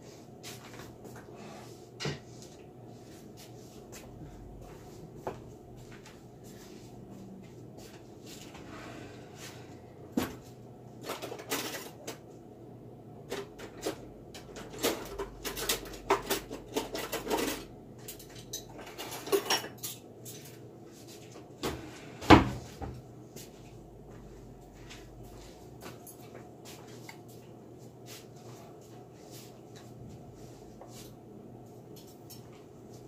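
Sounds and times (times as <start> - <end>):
dishes and utensils clinking: 14.8 - 20.6.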